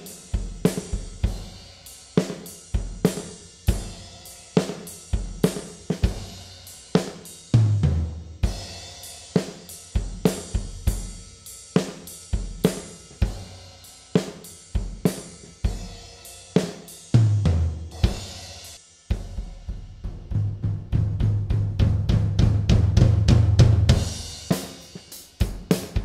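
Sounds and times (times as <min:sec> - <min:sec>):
drum kit beat with reverb: 0:00.0 - 0:26.0
heavy low drum hits: 0:19.1 - 0:24.6.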